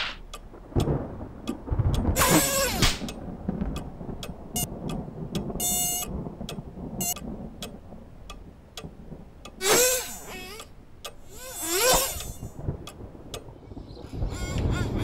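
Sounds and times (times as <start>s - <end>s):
low rumble: 0.0s - 15.0s
light ticks: 0.2s - 15.0s
short buzzy tone: 9.6s - 10.6s, 14.1s - 15.0s
squeaky cartoon creature voice: 14.2s - 15.0s.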